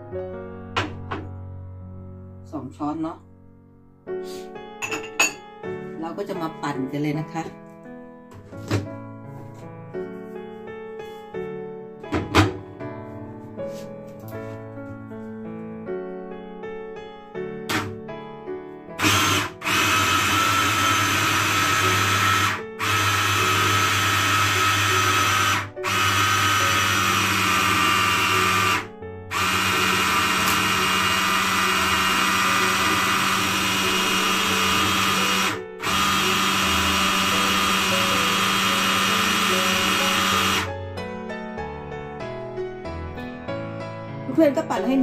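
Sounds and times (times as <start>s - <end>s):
hand blender motor grinding: 17.7s - 17.9s, 19.0s - 40.7s.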